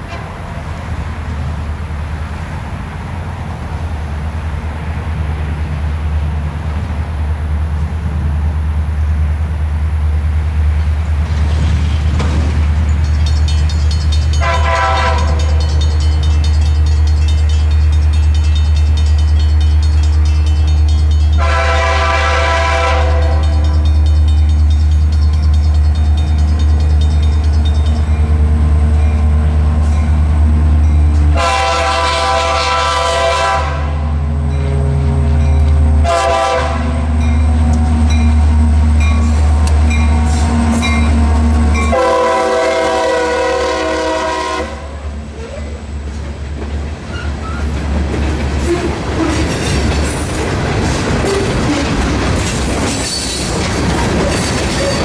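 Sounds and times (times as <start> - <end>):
low train rumble: 0.0 - 55.0
train cars rolling past: 0.0 - 55.0
locomotive air horn blasts: 14.4 - 15.6, 21.4 - 23.7, 31.3 - 34.1, 36.0 - 37.1, 41.8 - 45.1.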